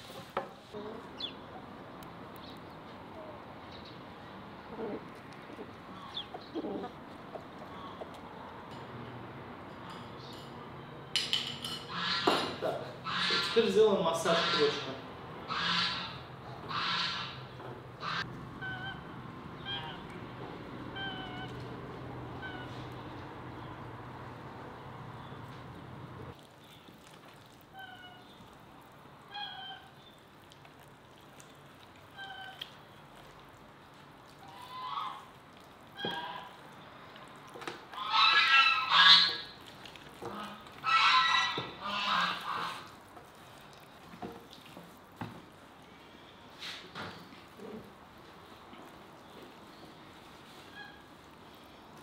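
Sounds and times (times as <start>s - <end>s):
geese calling: 11.9s - 12.4s, 13.0s - 20.2s, 20.8s - 23.1s, 34.4s - 35.3s, 37.9s - 39.6s, 40.3s - 42.9s
hands squelching raw chicken skin: 26.3s - 46.0s.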